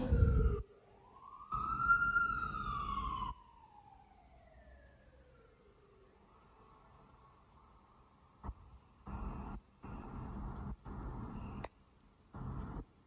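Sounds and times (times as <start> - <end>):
siren wailing: 0.0 - 6.1.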